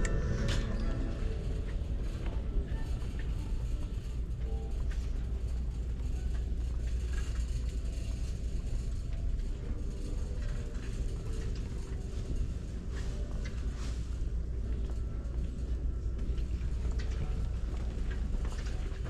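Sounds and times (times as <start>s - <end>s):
faint footsteps: 0.0s - 19.0s.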